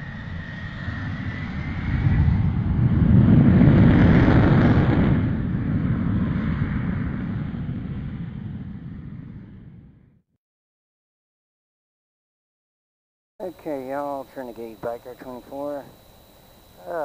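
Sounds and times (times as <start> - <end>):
jet aircraft rumble: 0.0 - 10.2, 13.4 - 17.0
thin high whine: 13.4 - 17.0.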